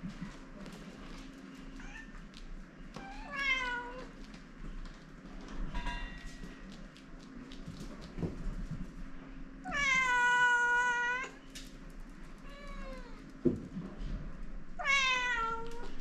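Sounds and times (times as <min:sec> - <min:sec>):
cats meowing: 0:03.0 - 0:04.2, 0:09.7 - 0:11.4, 0:12.4 - 0:13.3, 0:14.8 - 0:16.0.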